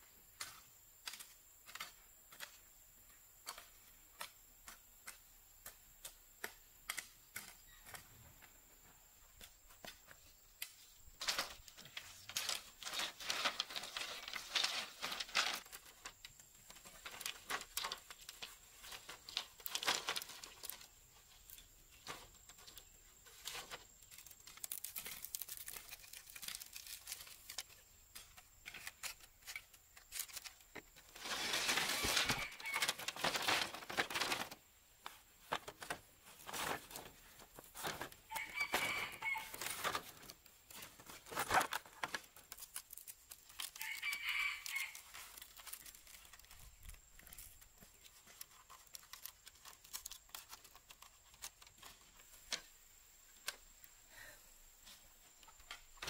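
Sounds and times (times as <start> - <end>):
bamboo strips clacking: 0.4 - 2.6, 3.4 - 8.1, 9.4 - 53.8
dry scraping and rustling: 9.4 - 53.6.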